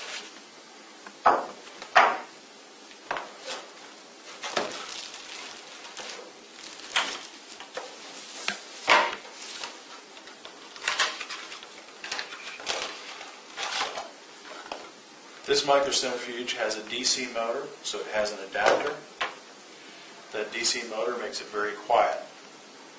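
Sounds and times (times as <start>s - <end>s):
plastic bag rustling: 3.0s - 15.0s.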